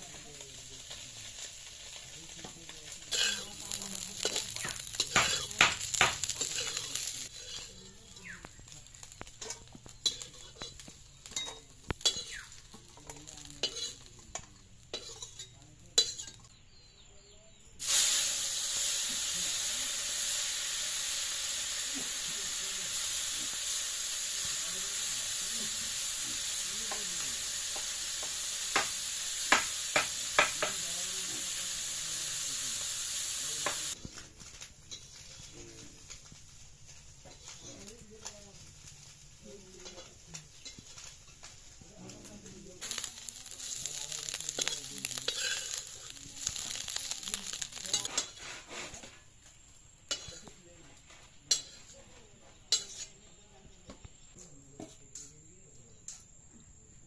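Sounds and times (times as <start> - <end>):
loud sizzle: 0.0 - 16.9, 17.7 - 53.4
metal spatula scraping pan: 2.9 - 8.2, 9.4 - 14.1, 42.8 - 49.2, 51.5 - 52.0.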